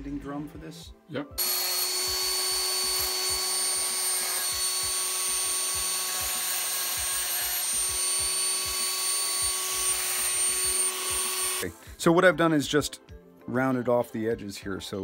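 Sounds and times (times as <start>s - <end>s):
rotary tool grinding metal: 1.4s - 11.6s.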